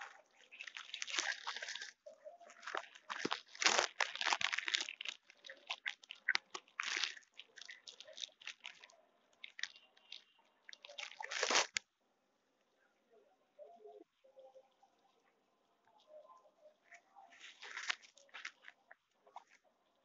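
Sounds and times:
rabbit chewing greens: 0.0 - 11.8, 16.8 - 19.6.

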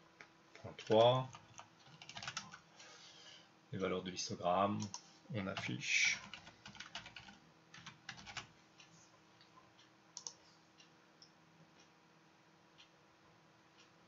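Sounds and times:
faint keyboard typing: 0.2 - 2.7, 4.7 - 11.9.

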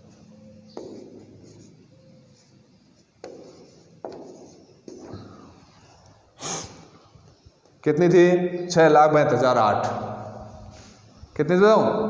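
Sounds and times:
marker writing on whiteboard: 0.0 - 6.2
marker tip tapping board: 0.8 - 1.2, 3.2 - 5.0.

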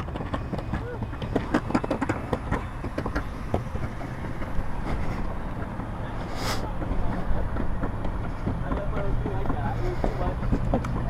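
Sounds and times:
tyres on pavement: 0.0 - 11.0
short hiss: 6.3 - 6.7.

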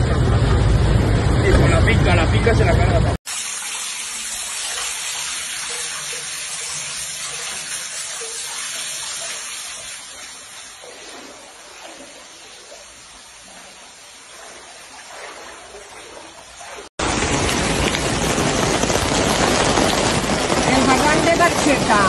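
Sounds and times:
floodwater rushing: 0.0 - 22.0
faint water hiss: 3.3 - 16.9
heavy rain: 17.0 - 22.0.

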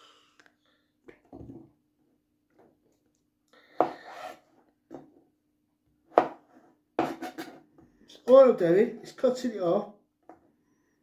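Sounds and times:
knife scraping: 3.8 - 4.5.

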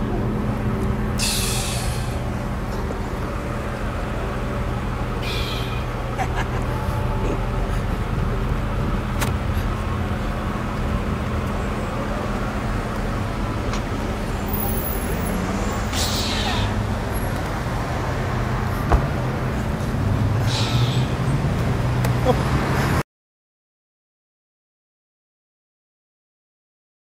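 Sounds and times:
vehicle engine idling: 0.0 - 22.4
city street traffic: 0.0 - 23.0.

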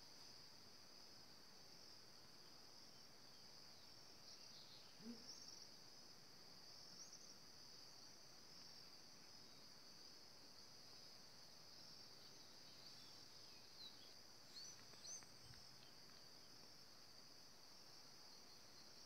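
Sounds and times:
high-pitched insect chorus trilling: 0.1 - 19.0
faint chirps: 2.9 - 5.7, 12.0 - 16.7.

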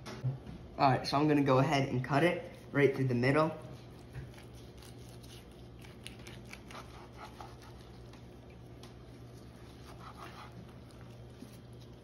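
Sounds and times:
low steady hum: 0.0 - 12.0
knife sawing through crusty meat: 3.7 - 8.3, 9.0 - 12.0.

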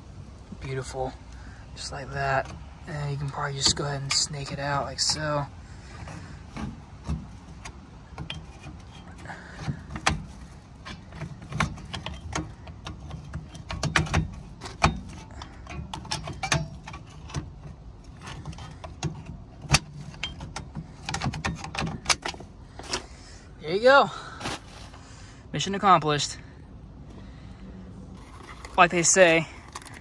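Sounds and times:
metal clanks: 1.8 - 23.2
pry bar scraping metal: 1.9 - 23.3.

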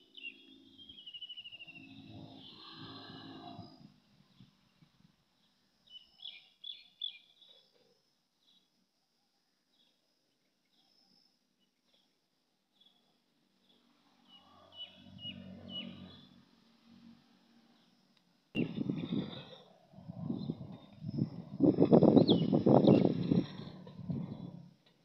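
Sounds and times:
sparrow chirps: 0.0 - 3.7, 5.8 - 7.6, 14.2 - 16.3, 18.6 - 24.5
faint low rumble: 18.6 - 25.0.

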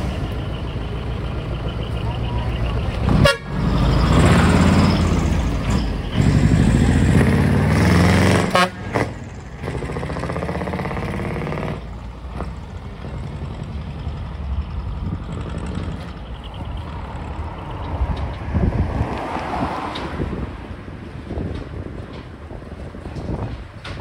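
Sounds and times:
vehicle engine driving off: 0.0 - 19.8
truck engine: 0.0 - 24.0
truck horn blasts: 3.1 - 5.0, 7.7 - 9.2.

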